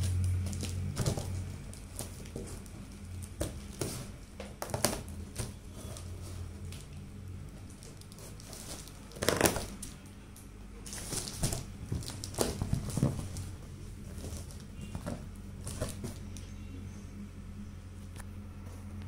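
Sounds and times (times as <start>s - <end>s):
cardboard scraping and crinkling: 0.0s - 6.6s, 7.7s - 10.0s, 10.8s - 16.5s.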